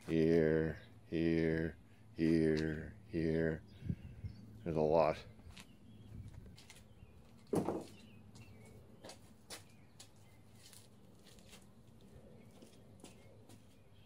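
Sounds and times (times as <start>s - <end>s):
birds chirping: 0.0s - 14.0s
dull thump: 7.5s - 7.9s.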